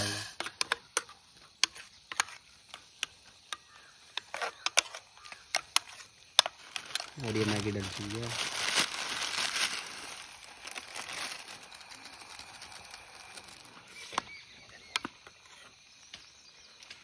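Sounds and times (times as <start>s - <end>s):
plastic packet crinkling: 6.4s - 14.1s.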